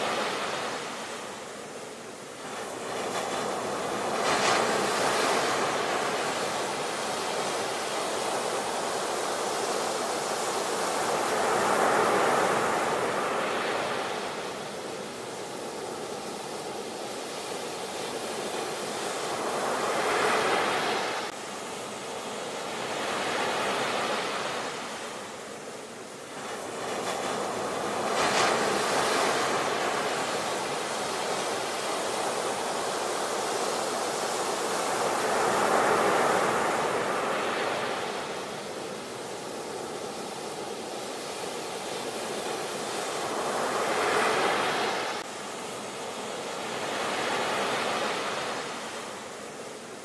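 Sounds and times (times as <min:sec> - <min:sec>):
small waves breaking on beach: 0:00.0 - 0:50.0.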